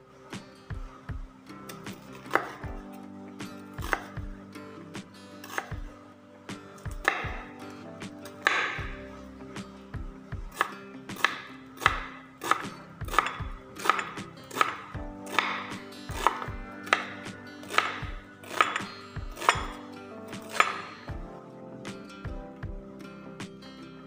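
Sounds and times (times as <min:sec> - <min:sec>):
knife chopping on wooden board: 0:01.9 - 0:02.8, 0:03.8 - 0:04.3, 0:06.8 - 0:09.1, 0:10.4 - 0:21.0.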